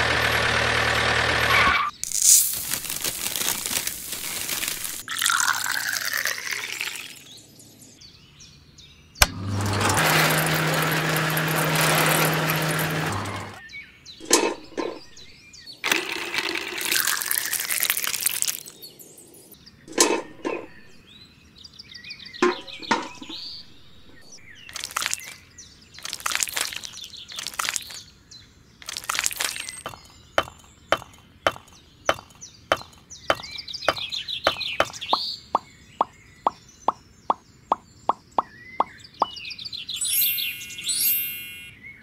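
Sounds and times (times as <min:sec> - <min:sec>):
sharp clicks and knocks: 0:14.2 - 0:15.3, 0:19.9 - 0:21.0, 0:22.4 - 0:25.3
short bird-like chirps: 0:31.6 - 0:42.0.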